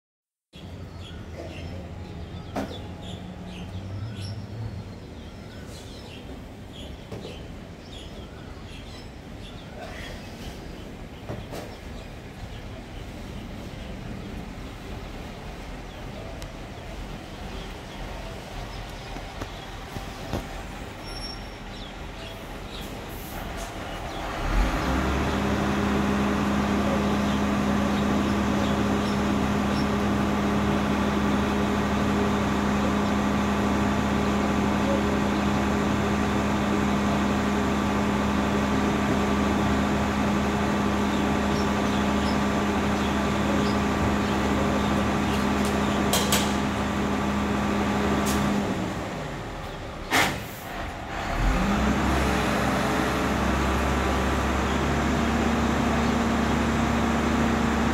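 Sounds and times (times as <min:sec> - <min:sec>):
garbage truck engine drone: 0:00.6 - 0:57.9.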